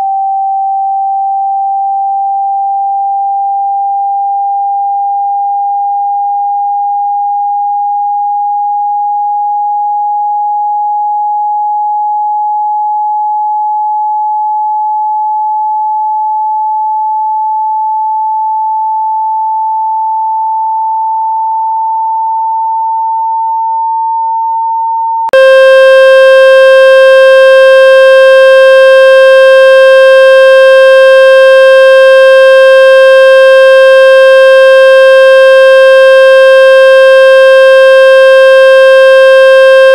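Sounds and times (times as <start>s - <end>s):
harsh buzzing tone: 25.4s - 39.9s
rising sine tone: 25.4s - 39.9s.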